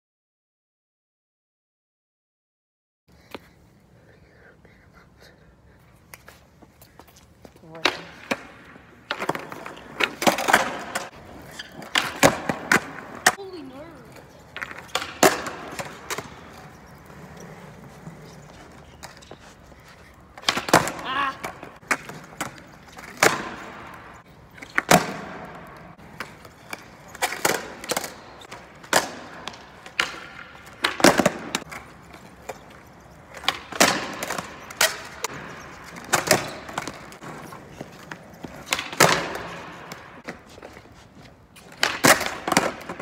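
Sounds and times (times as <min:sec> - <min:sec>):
skateboard wheels rolling on pavers: 0:05.8 - 0:43.0
skateboard clacks and landings: 0:07.7 - 0:19.5, 0:20.2 - 0:43.0
skateboard tail pops: 0:07.8 - 0:13.4, 0:14.6 - 0:16.4, 0:20.4 - 0:31.9, 0:33.3 - 0:37.4, 0:38.0 - 0:40.4, 0:41.6 - 0:43.0.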